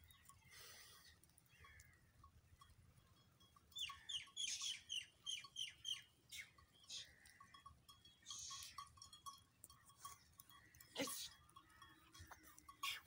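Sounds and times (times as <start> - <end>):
bird calls: 0.0 - 2.2, 3.7 - 9.2.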